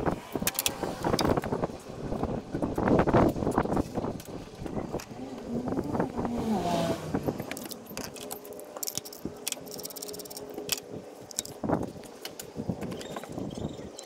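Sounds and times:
plastic clicks and rattles: 0.4s - 1.4s, 7.4s - 13.3s.

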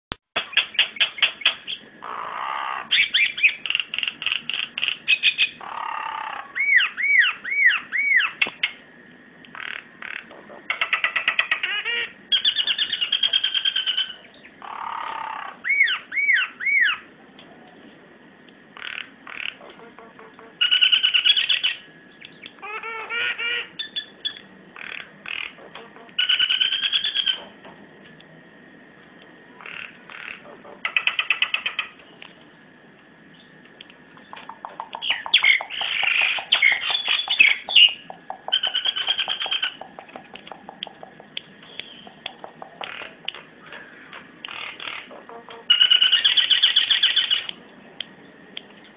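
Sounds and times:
myna singing varied calls: 0.8s - 8.4s, 9.5s - 17.1s, 34.2s - 47.5s.

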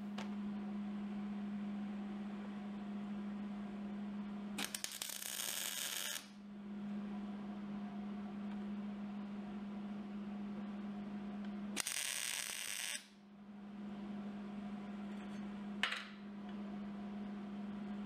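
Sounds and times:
steady low hum: 0.0s - 18.0s
welding arc crackling: 4.6s - 6.3s, 11.8s - 13.1s.

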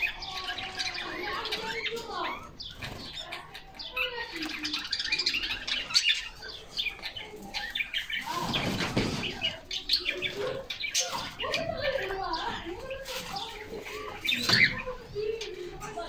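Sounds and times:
canaries chirping: 0.0s - 16.0s
wings flapping: 0.7s - 6.1s, 6.8s - 14.7s.

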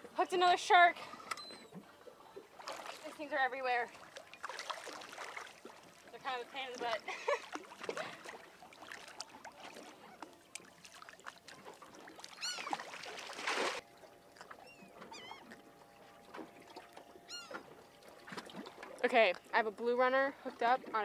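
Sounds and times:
water sloshing: 0.0s - 21.0s
seabirds calling: 11.4s - 13.1s, 14.0s - 18.2s.

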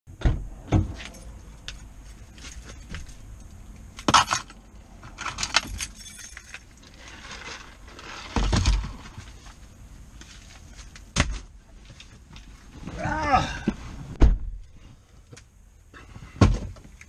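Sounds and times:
keys jangling: 5.2s - 6.7s.

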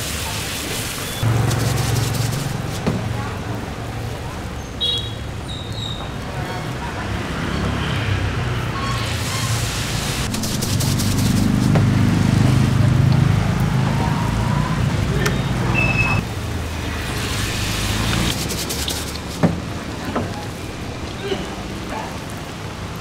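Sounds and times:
street noise: 0.0s - 23.0s
vehicle engine running: 1.2s - 4.3s, 10.2s - 19.9s.

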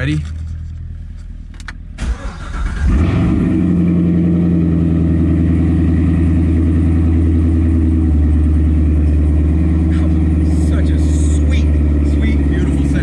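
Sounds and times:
car engine idling loudly: 2.9s - 13.0s.

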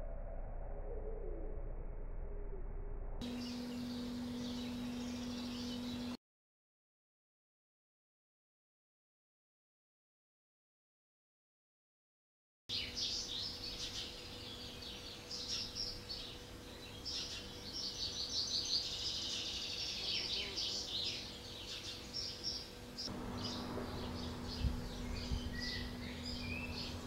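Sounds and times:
faint low hum: 0.0s - 6.2s, 12.7s - 27.0s
loud low buzz: 0.0s - 6.2s, 22.5s - 27.0s
songbirds chirping: 3.2s - 6.2s, 12.7s - 27.0s.

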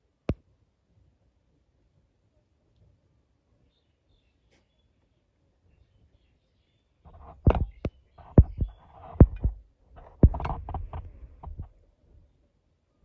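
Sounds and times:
pig thumping and knocking: 7.1s - 11.7s.

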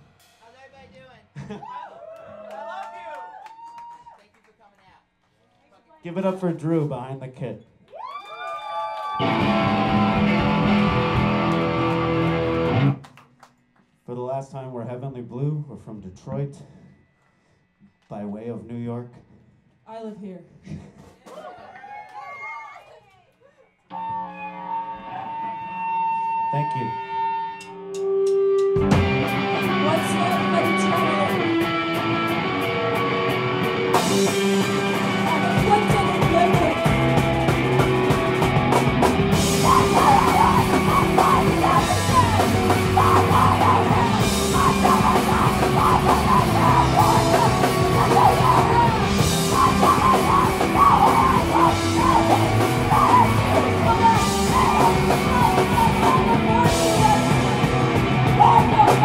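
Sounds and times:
drums: 0.0s - 4.1s, 6.1s - 22.8s, 23.9s - 59.0s
electric guitar: 9.1s - 13.1s, 23.9s - 59.0s
bass guitar: 9.2s - 13.1s, 23.9s - 59.0s
screamed vocals: 21.4s - 23.1s, 39.4s - 59.0s.

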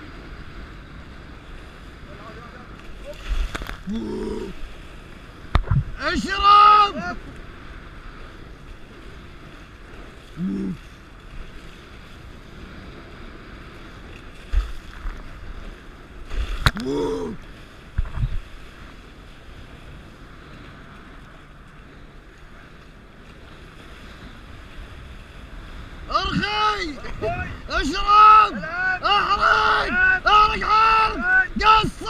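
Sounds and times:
wind and water rushing: 0.0s - 32.0s
low thumps: 5.5s - 6.0s.

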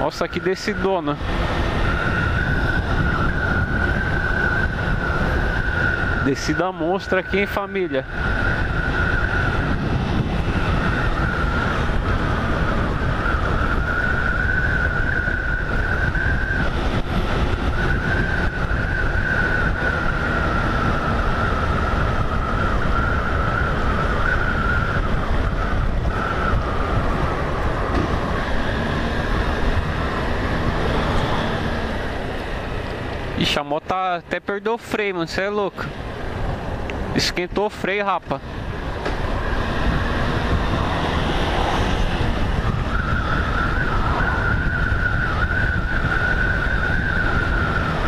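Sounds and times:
man speaking: 0.0s - 1.2s, 6.2s - 8.0s, 33.4s - 35.9s, 37.1s - 38.4s
motorcycle engine noise: 0.0s - 48.0s
wind rush: 0.0s - 48.0s.

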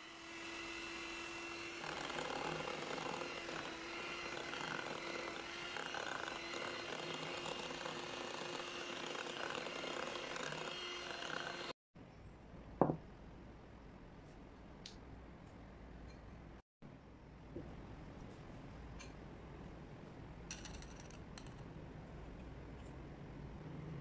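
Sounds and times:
electric hand mixer whining: 0.0s - 11.8s.

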